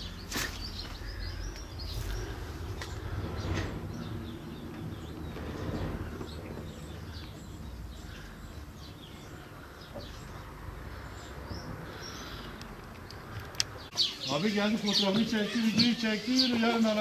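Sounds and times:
small birds chirping: 0:00.0 - 0:17.0
low outdoor background rumble: 0:01.0 - 0:13.9.

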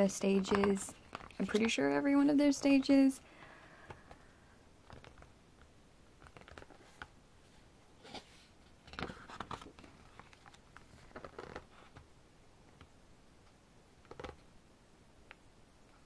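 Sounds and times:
paper pages rustling: 0:06.2 - 0:07.1, 0:08.8 - 0:12.1.

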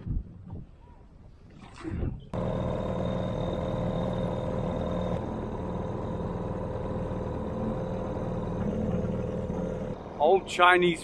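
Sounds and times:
outboard motor running: 0:02.4 - 0:10.0.

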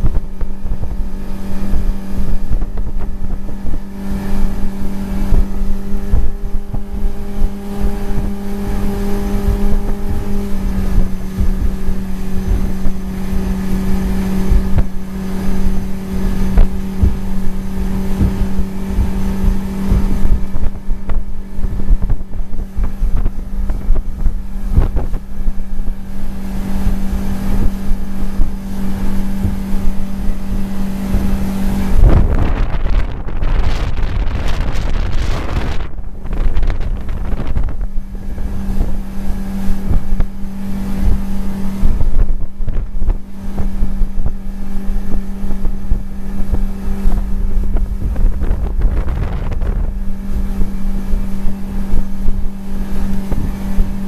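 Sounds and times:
outboard motor droning: 0:00.0 - 0:54.0
wind buffeting microphone: 0:00.0 - 0:54.0.

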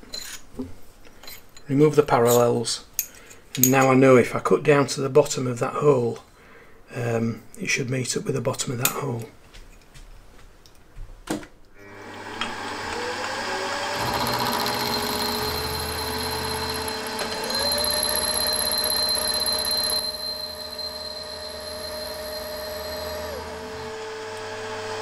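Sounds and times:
milling machine spindle whine: 0:11.8 - 0:25.0
end mill cutting metal: 0:11.9 - 0:25.0.

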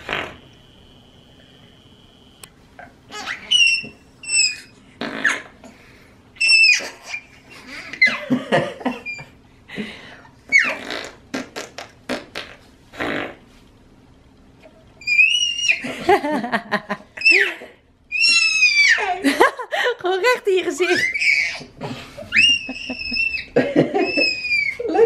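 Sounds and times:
man blowing raspberries: 0:00.0 - 0:00.8, 0:10.6 - 0:13.4
baby squealing with laughter: 0:03.1 - 0:05.5, 0:06.4 - 0:08.3, 0:08.9 - 0:09.4, 0:10.5 - 0:11.0, 0:15.0 - 0:15.9, 0:17.2 - 0:19.2, 0:20.9 - 0:25.0.

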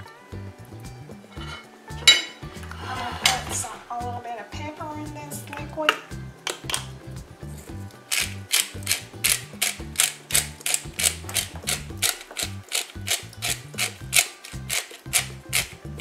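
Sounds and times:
utensil stirring in plastic bowl: 0:08.1 - 0:15.8.

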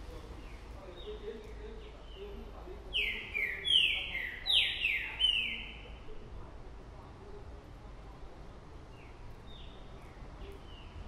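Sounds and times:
caged songbird whistling: 0:02.9 - 0:05.8.

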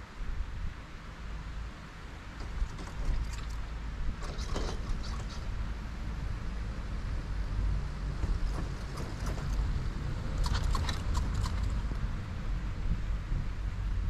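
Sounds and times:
chairlift cable rumble: 0:02.3 - 0:14.0
wind on microphone: 0:08.0 - 0:14.0.

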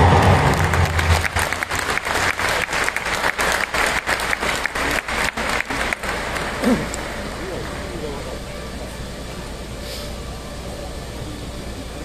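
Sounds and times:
stadium crowd applause: 0:00.0 - 0:08.6
sharp nearby claps: 0:00.2 - 0:07.2.

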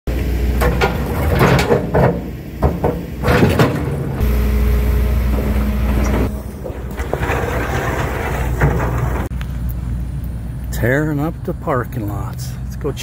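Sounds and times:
heavy machine engine drone: 0:00.1 - 0:10.7
excavator bucket scraping rubble: 0:00.5 - 0:04.4, 0:05.1 - 0:09.3.

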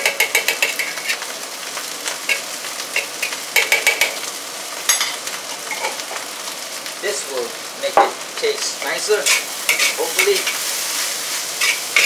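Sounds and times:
spatula scraping and clinking a pan: 0:00.0 - 0:01.2, 0:02.3 - 0:04.2, 0:09.2 - 0:10.8, 0:11.6 - 0:12.0
rice sizzling in a pan: 0:00.0 - 0:12.0.

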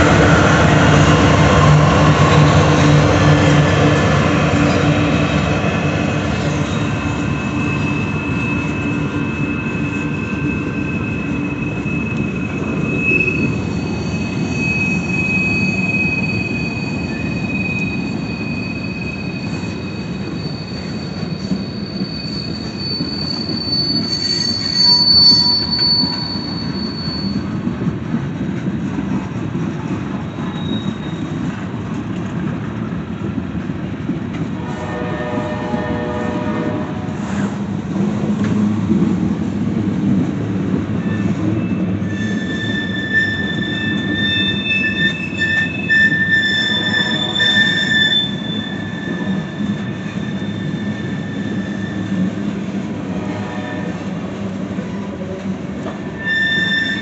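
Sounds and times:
locomotive hum: 0:00.0 - 0:57.0
train wheels rumbling on rails: 0:00.0 - 0:57.0
high-pitched wheel squeal: 0:04.5 - 0:27.9, 0:30.1 - 0:31.6, 0:41.0 - 0:52.5, 0:53.2 - 0:54.3, 0:55.8 - 0:57.0.

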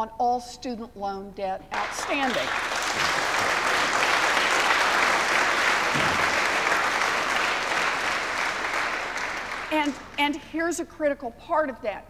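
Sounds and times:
audience applauding: 0:01.7 - 0:10.4.

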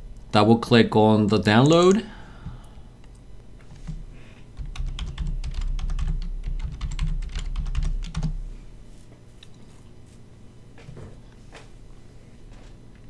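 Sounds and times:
computer keyboard typing: 0:04.6 - 0:08.4.

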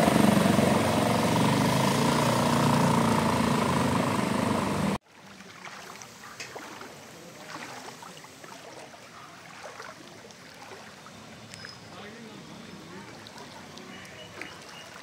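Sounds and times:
small vehicle engine running: 0:00.0 - 0:05.0
water churning: 0:00.0 - 0:15.0
light rain pattering: 0:05.3 - 0:15.0
drips on standing water: 0:07.5 - 0:15.0.

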